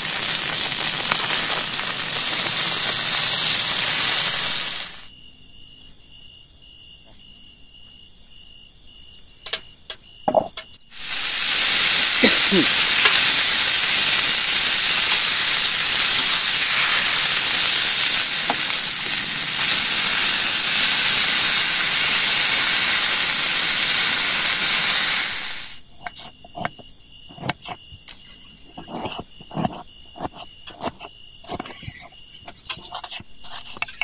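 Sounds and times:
food sizzling in hot oil: 0:00.0 - 0:05.1, 0:10.9 - 0:25.9
night insects trilling: 0:00.0 - 0:34.0
small clicks and knocks: 0:09.4 - 0:10.8.

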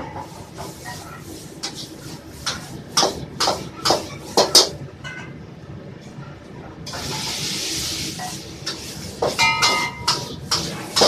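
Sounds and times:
metal ladle scraping in a wok: 0:06.9 - 0:11.0.

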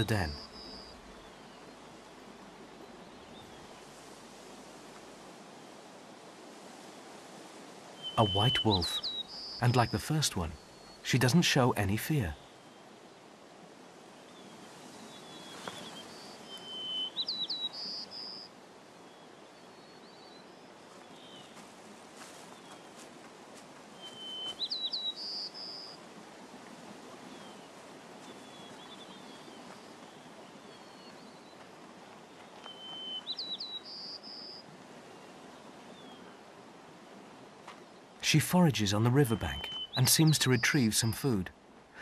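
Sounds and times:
faint bird chirps: 0:00.0 - 0:03.8, 0:07.9 - 0:13.0, 0:14.0 - 0:21.6, 0:23.9 - 0:26.0, 0:27.2 - 0:31.6, 0:32.2 - 0:36.5, 0:37.8 - 0:42.0
songbird singing: 0:00.0 - 0:04.0, 0:07.8 - 0:23.1, 0:23.8 - 0:42.0
outdoor background hiss: 0:00.0 - 0:42.0.

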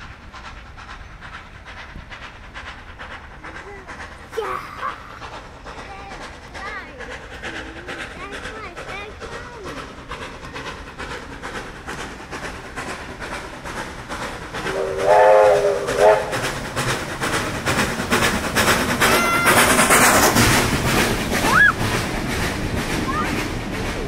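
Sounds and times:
rush of steam and running noise: 0:00.0 - 0:24.0
steam locomotive exhaust beats: 0:00.0 - 0:24.0
steam whistle blasts: 0:14.7 - 0:16.4.

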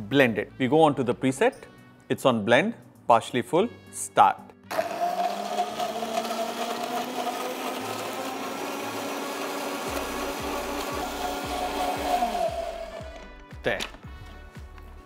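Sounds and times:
juicer motor whining: 0:04.7 - 0:13.3.

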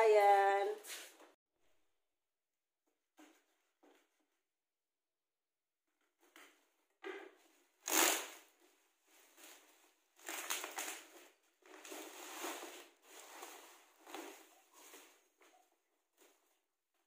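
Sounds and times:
loud plastic crackle: 0:07.8 - 0:08.5, 0:10.2 - 0:11.2
plastic wrapping crinkling: 0:09.3 - 0:15.0.

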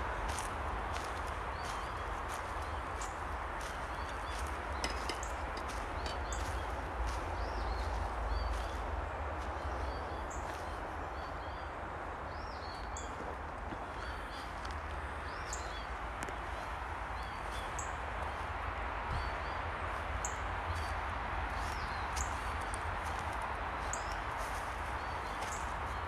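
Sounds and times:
footsteps on dirt trail: 0:00.0 - 0:10.8, 0:20.7 - 0:26.0.

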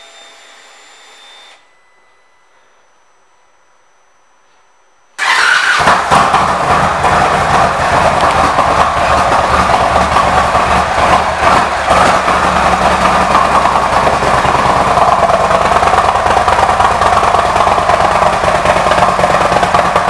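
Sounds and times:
motorcycle engine starting and idling: 0:05.2 - 0:20.0.

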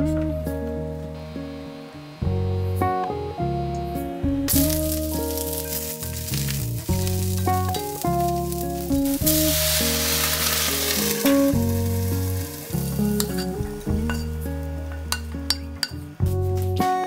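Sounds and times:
guitar music: 0:00.0 - 0:17.0
water sizzling in hot pan: 0:04.5 - 0:16.0.

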